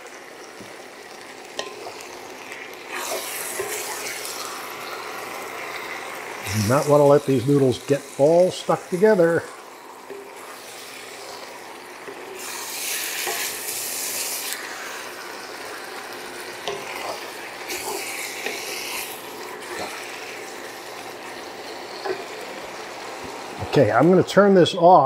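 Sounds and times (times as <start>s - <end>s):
food sizzling in a wok: 0.0s - 24.4s
utensils scraping a pan: 1.6s - 5.9s, 10.1s - 15.0s, 16.6s - 20.6s.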